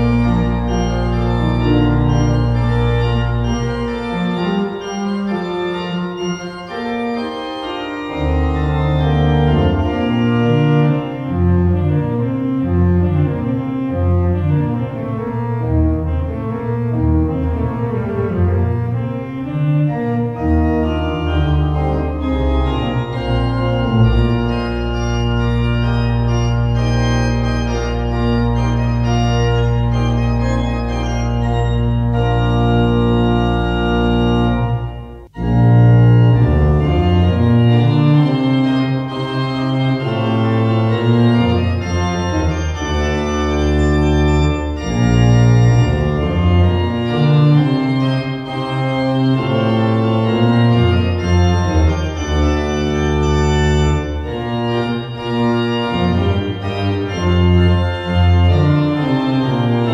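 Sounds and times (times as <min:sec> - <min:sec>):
organ playing hymn: 0:00.0 - 0:59.9.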